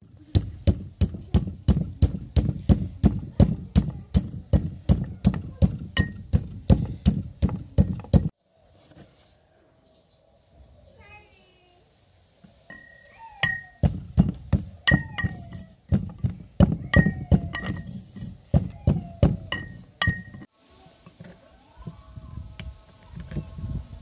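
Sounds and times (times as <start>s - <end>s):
metal pestle striking mortar: 0.0s - 8.3s, 12.7s - 20.5s.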